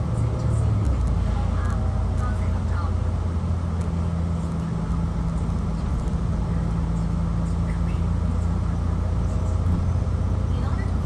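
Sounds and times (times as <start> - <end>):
bus engine drone: 0.0 - 11.0
road noise: 0.0 - 11.0.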